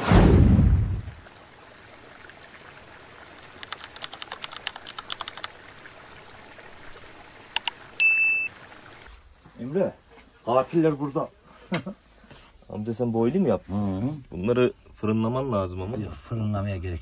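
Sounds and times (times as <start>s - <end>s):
loud whoosh: 0.0s - 1.2s
short high beep: 8.0s - 8.5s.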